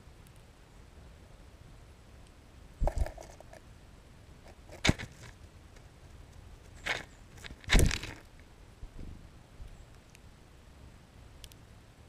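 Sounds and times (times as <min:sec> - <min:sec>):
bird pecking and hopping in snow: 0:02.2 - 0:03.7, 0:04.3 - 0:08.5.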